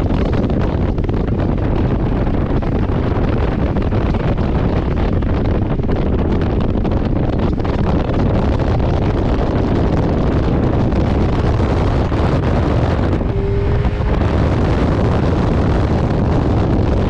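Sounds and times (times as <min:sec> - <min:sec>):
wind buffeting microphone: 0:00.0 - 0:17.0
motorcycle engine: 0:09.4 - 0:17.0.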